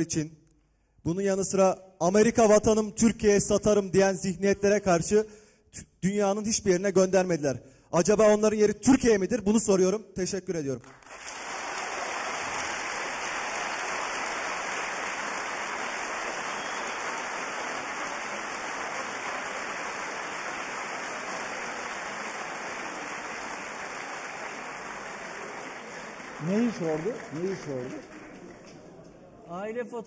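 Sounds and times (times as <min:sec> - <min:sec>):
audience applause: 0:10.8 - 0:29.2.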